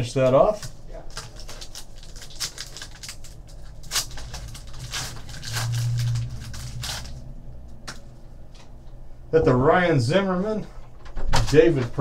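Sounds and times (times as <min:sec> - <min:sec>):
foil wrapper crinkling and tearing: 0:00.0 - 0:07.3
low hum: 0:01.7 - 0:10.9.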